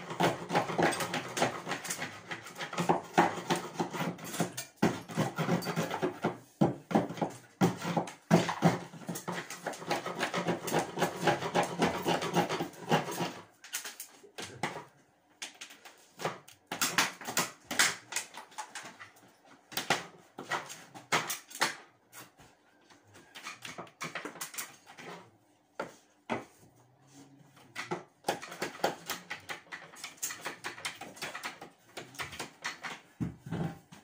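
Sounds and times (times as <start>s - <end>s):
hand tool scraping a wall: 0.0s - 13.7s.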